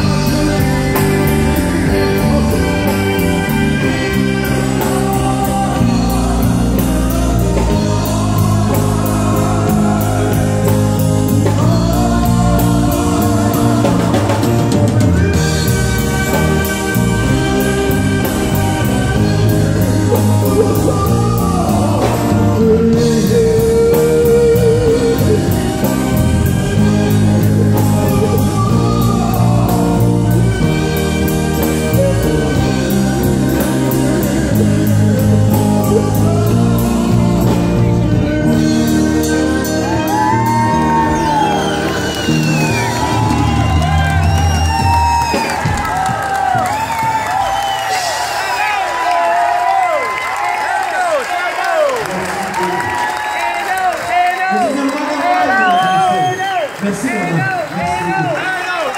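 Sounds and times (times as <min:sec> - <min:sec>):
man singing: 0:00.0 - 0:44.4
drum kit: 0:00.0 - 0:50.4
electric guitars: 0:00.0 - 0:50.4.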